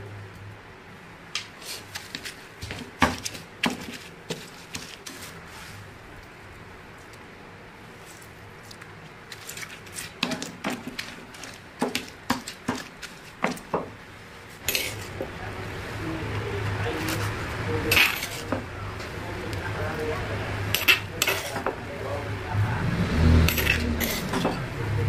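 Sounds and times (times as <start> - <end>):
stone pestle knocking in mortar: 11.8 - 14.0.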